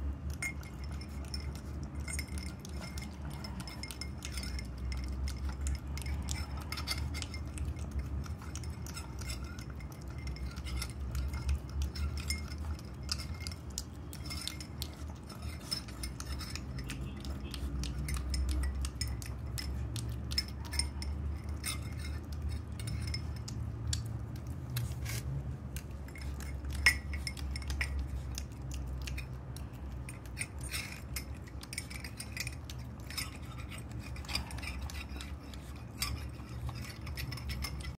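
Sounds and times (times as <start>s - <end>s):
puppy eating from ceramic bowl: 0.0s - 37.9s
steady low hum: 0.0s - 37.9s.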